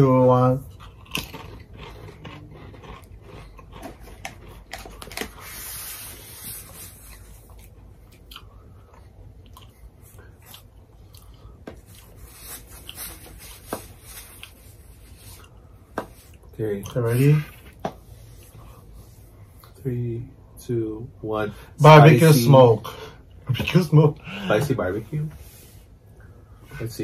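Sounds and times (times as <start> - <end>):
crisps being chewed: 0.6 - 5.8, 6.6 - 17.8.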